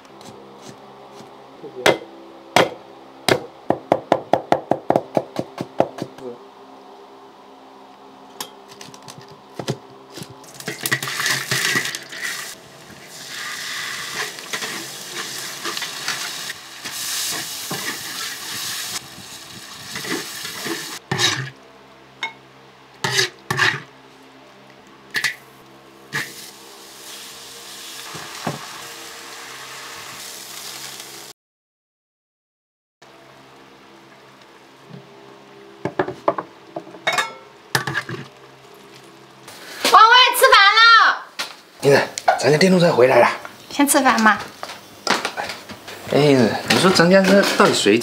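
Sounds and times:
food sizzling in a wok: 0:10.6 - 0:21.5, 0:23.0 - 0:23.9, 0:25.2 - 0:31.3.

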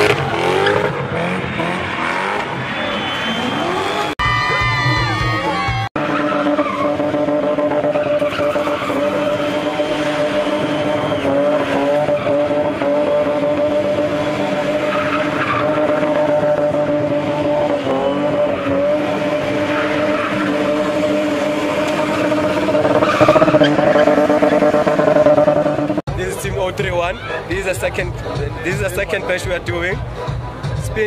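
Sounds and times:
car engine at high revs: 0:00.0 - 0:04.2, 0:06.0 - 0:26.1
tyres screeching on tarmac: 0:07.8 - 0:12.9, 0:13.6 - 0:25.1.

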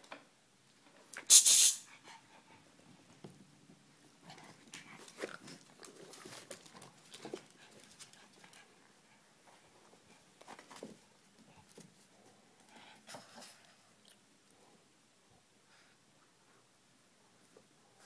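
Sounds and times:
dogs playing and scuffling: 0:02.0 - 0:14.0.

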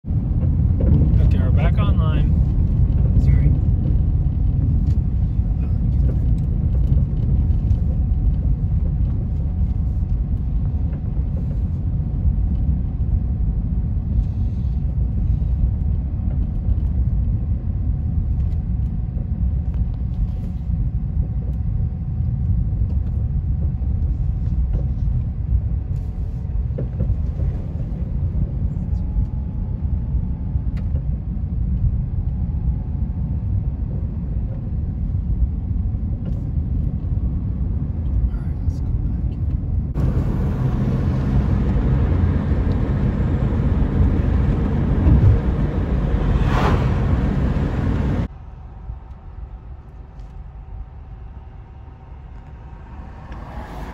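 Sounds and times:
car engine and tyre noise: 0:00.0 - 0:32.3, 0:32.9 - 0:53.9
faint steady whine: 0:01.2 - 0:53.8.

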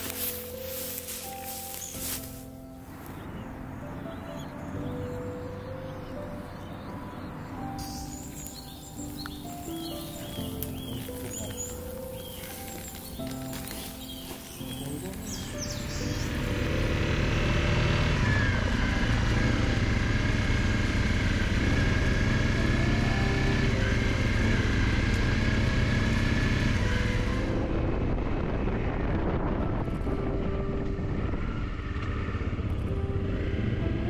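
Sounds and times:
motorcycle engine running: 0:08.2 - 0:34.0.

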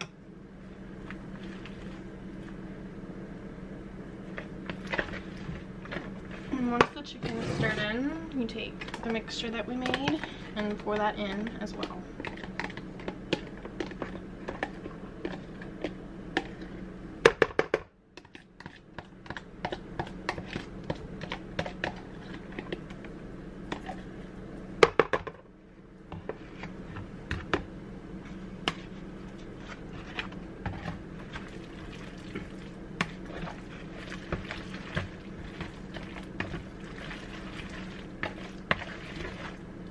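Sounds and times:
steady low hum: 0:00.0 - 0:39.9
spoon scraping plastic bowls: 0:28.7 - 0:31.4.

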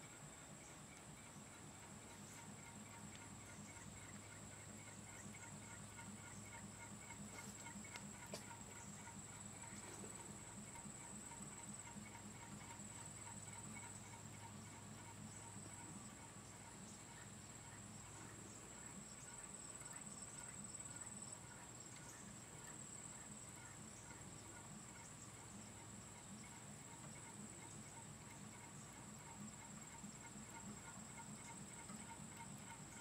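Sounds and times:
fan engine ticking: 0:00.0 - 0:19.3.

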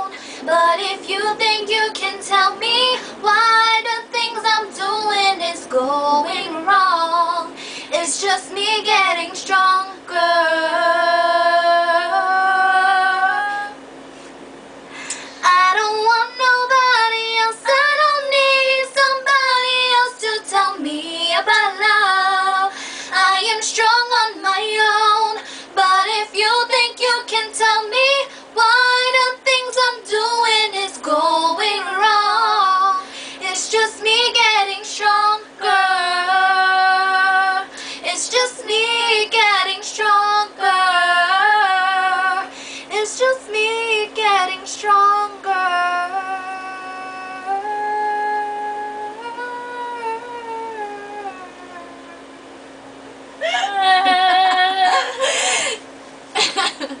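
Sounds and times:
women singing together: 0:00.0 - 0:13.8, 0:15.5 - 0:51.4, 0:53.4 - 0:55.4
faint steady hum: 0:00.0 - 0:57.0.

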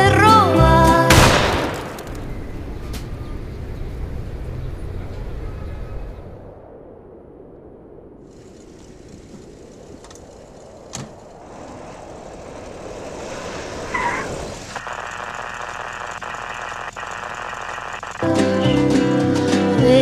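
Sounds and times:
music: 0:00.0 - 0:01.1, 0:18.2 - 0:20.0
tyres on gravel: 0:08.3 - 0:18.2
tyre squeal: 0:13.9 - 0:14.8.

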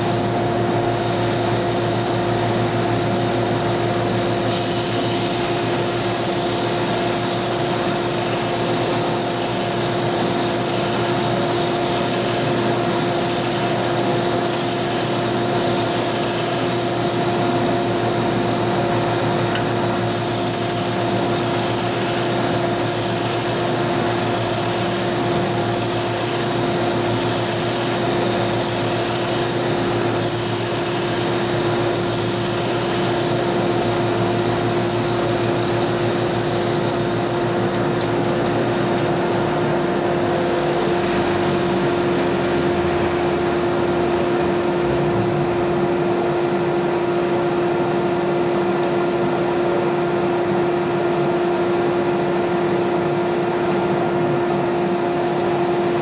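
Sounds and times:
sander humming and whining: 0:00.0 - 0:46.9
wood scraping on sanding belt: 0:20.1 - 0:33.5.

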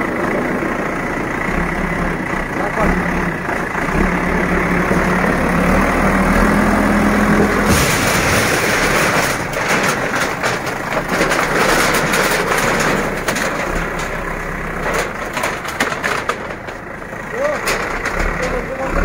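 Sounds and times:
diesel engine running: 0:00.0 - 0:19.0
metal fence sheets crashing: 0:07.4 - 0:16.7, 0:17.4 - 0:18.8.

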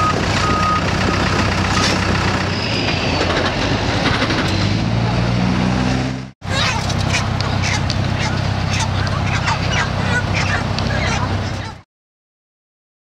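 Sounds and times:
reversing beeper: 0:00.0 - 0:03.2
heavy equipment engine running: 0:00.0 - 0:11.8.

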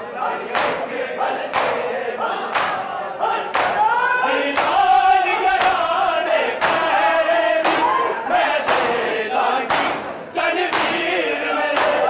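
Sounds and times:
men chanting a lament: 0:00.0 - 0:12.0
chest-beating slaps: 0:00.5 - 0:00.9, 0:01.5 - 0:01.9, 0:02.5 - 0:02.9, 0:03.5 - 0:03.9, 0:04.5 - 0:04.9, 0:05.6 - 0:06.0, 0:06.6 - 0:07.0, 0:07.6 - 0:09.1, 0:09.7 - 0:11.1, 0:11.7 - 0:12.0.

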